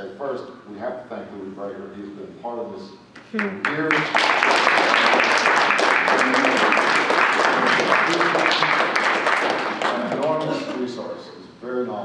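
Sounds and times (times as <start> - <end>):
audience applauding: 3.6 - 10.9.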